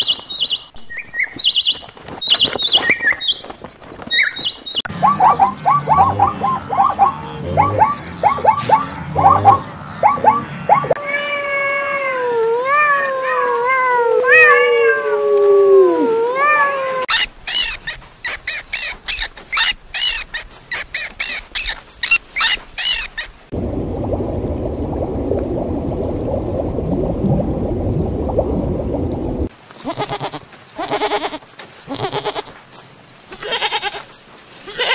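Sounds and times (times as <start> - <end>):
aquarium water rushing: 4.8 - 12.8, 23.5 - 29.5
kittens meowing: 10.9 - 17.1.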